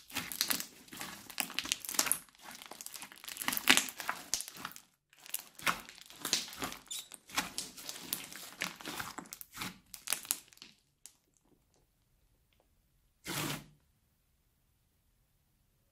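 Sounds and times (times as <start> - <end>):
crunchy slime crackling: 0.0 - 11.8.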